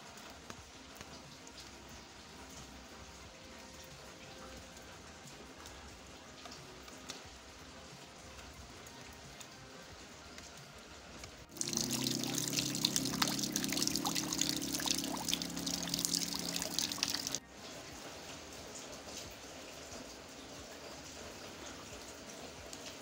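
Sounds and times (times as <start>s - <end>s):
faint rain: 0.0s - 23.0s
low hum: 11.5s - 17.4s
water splashing into plastic drum: 11.5s - 17.4s.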